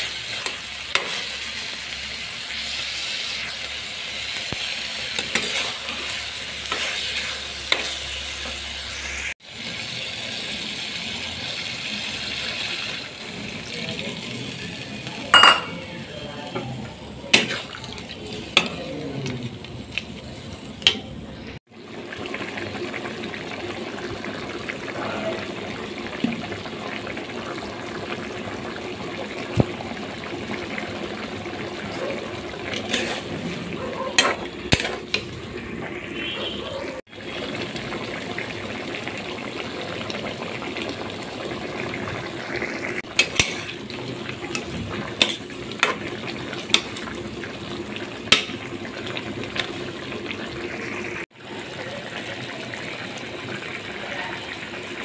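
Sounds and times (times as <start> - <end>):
gravy bubbling in a pan: 0.0 - 55.0
metal spatula scraping a pan: 0.2 - 1.5, 5.1 - 8.8, 32.7 - 35.3, 43.0 - 43.8.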